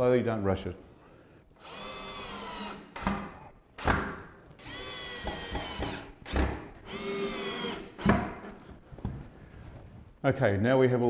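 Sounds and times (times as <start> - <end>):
drill motor whining: 1.6 - 3.1, 4.6 - 8.7
sharp knocks: 5.2 - 6.7.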